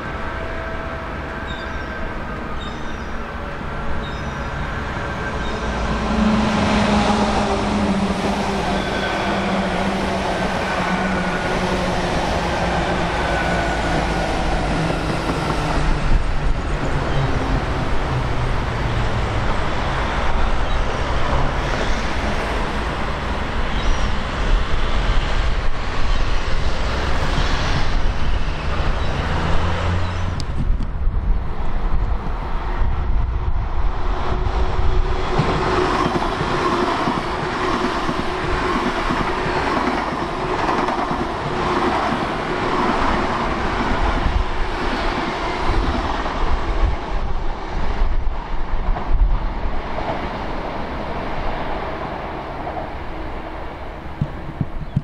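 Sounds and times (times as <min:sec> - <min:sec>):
diesel train engine passing: 0:00.0 - 0:55.0
train wheels on rails: 0:00.0 - 0:55.0.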